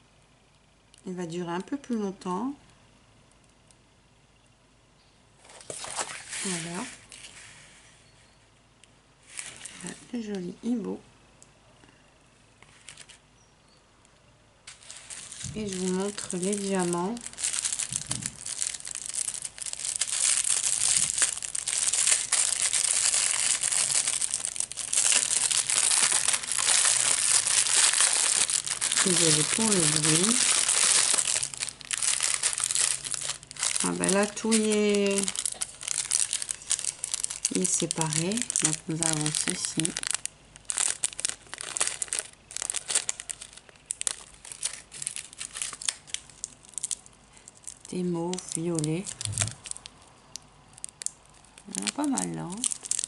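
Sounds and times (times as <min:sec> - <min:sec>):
plastic packaging crinkling: 0:05.4 - 0:07.7, 0:12.6 - 0:13.2, 0:14.6 - 0:53.0.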